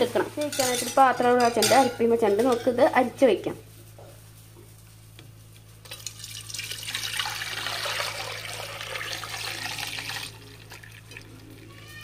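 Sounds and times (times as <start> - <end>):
liquid pouring through strainer: 5.8 - 11.6.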